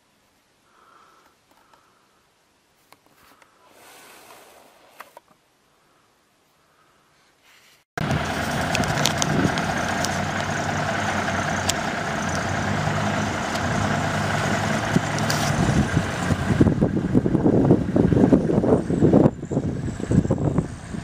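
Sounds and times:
truck diesel engine running: 8.0 - 21.0
wind buffeting microphone: 8.0 - 21.0.

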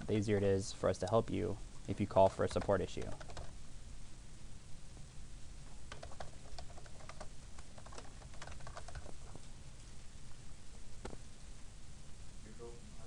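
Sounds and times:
typing on computer keyboard: 2.2 - 3.6, 5.9 - 9.3.

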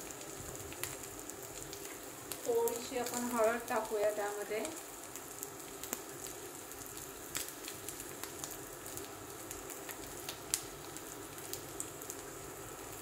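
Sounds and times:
oil popping and crackling: 0.0 - 13.0
potatoes sizzling in oil: 0.0 - 13.0.

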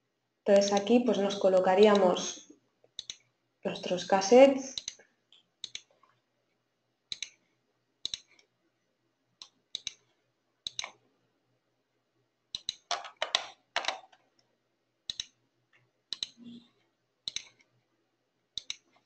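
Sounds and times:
computer mouse clicks: 0.5 - 1.0, 1.9 - 5.0, 5.6 - 6.0, 7.1 - 8.5, 9.4 - 11.0, 12.5 - 14.2, 15.1 - 15.4, 16.1 - 16.6, 17.2 - 17.7, 18.6 - 19.0.

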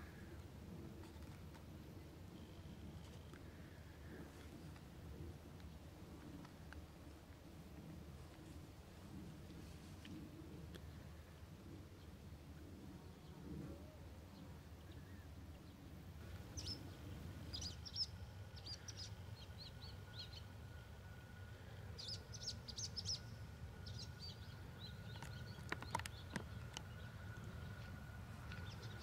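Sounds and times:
faint low rumble: 0.0 - 29.0
small birds chirping: 16.4 - 20.5, 22.0 - 29.0.

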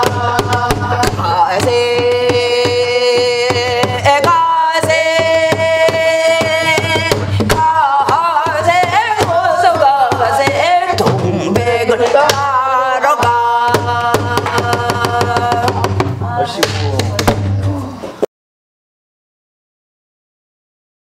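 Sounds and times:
woman singing folk song: 0.0 - 16.6.

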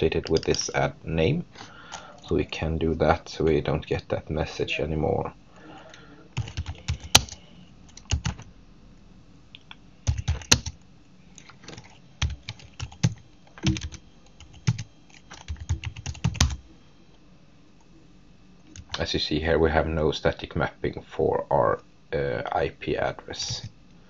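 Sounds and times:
computer keyboard typing: 0.2 - 0.7, 6.4 - 8.5, 9.6 - 10.8, 11.4 - 16.6.

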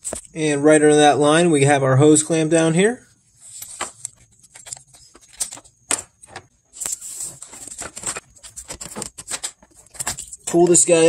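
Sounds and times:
scraping and rustling: 3.3 - 10.6.

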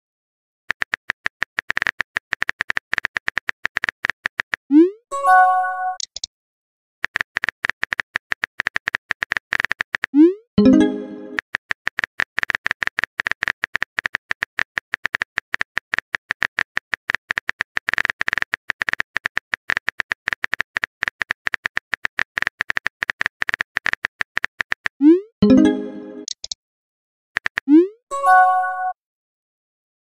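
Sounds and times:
rapid sharp clicks: 0.7 - 4.7, 7.0 - 10.2, 11.3 - 25.0, 27.4 - 27.7.

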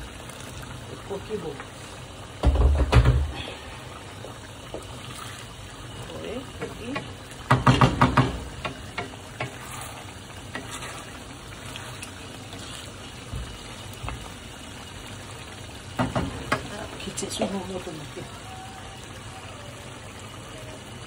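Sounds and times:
rice sizzling in pot: 0.0 - 20.8
utensil knocking against pot: 6.6 - 9.6.

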